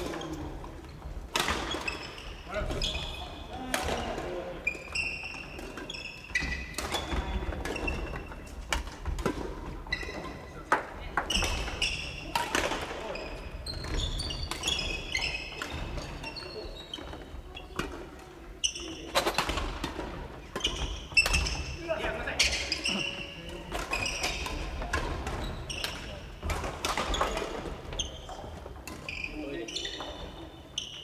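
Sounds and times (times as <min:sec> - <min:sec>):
sneakers squeaking on floor: 0:00.0 - 0:31.0
racket hitting shuttlecock: 0:01.3 - 0:02.0, 0:12.3 - 0:13.0.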